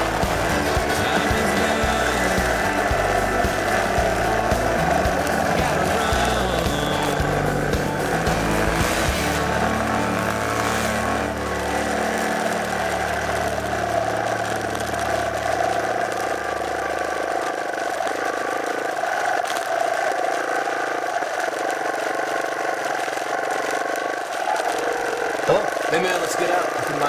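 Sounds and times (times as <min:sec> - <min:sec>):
deep low hum: 0:00.0 - 0:15.7
dirt bike engine running: 0:00.0 - 0:17.4.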